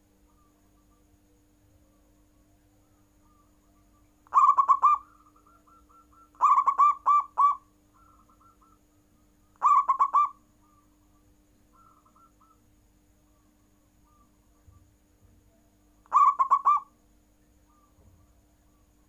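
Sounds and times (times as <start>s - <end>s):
dove cooing: 3.2s - 8.8s, 9.6s - 10.8s, 11.7s - 12.6s, 16.1s - 16.9s.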